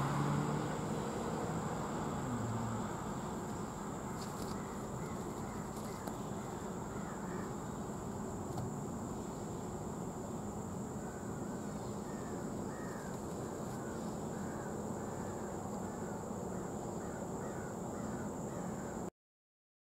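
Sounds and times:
freight cars rumbling: 0:00.0 - 0:08.4
insects buzzing: 0:00.0 - 0:19.1.

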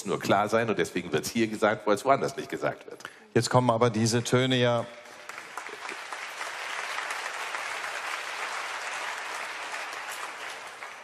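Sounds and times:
large audience applauding: 0:05.0 - 0:11.0.

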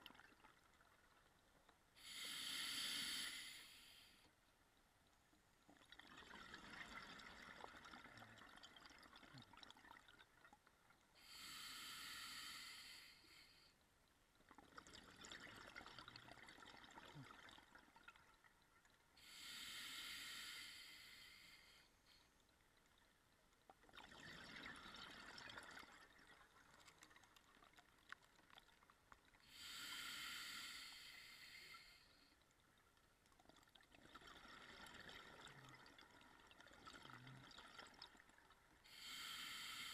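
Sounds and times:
hissing regulator inhalations: 0:02.0 - 0:04.2, 0:38.9 - 0:39.9.

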